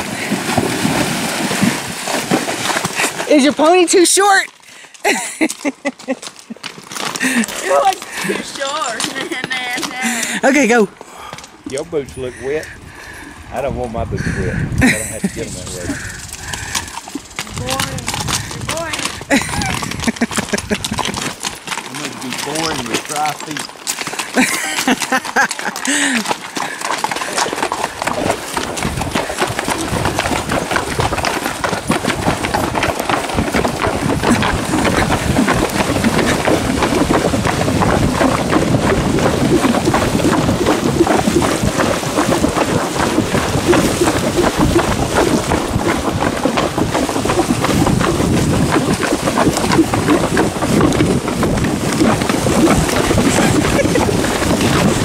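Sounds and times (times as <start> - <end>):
hooves splashing through stream: 0.0 - 14.0, 14.8 - 55.0.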